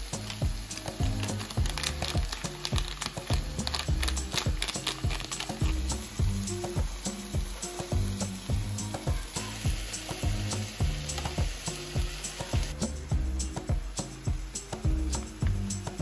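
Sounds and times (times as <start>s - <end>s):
background music: 0.0s - 16.0s
meat sizzling in a frying pan: 0.0s - 16.0s
metal spoon stirring in pan: 0.1s - 12.7s.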